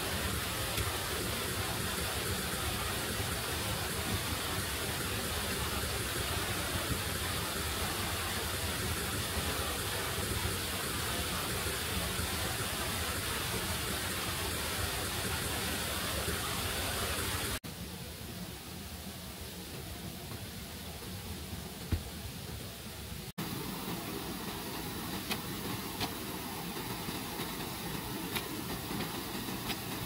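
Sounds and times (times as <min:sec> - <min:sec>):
heavy rain rushing: 0:00.0 - 0:17.6
quiet hiss: 0:00.0 - 0:30.0.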